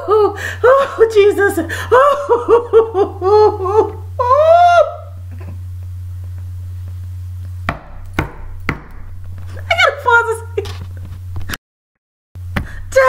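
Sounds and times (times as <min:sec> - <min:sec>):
woman laughing: 0:00.0 - 0:05.6, 0:09.5 - 0:10.8
low electrical hum: 0:00.0 - 0:11.6, 0:12.4 - 0:13.0.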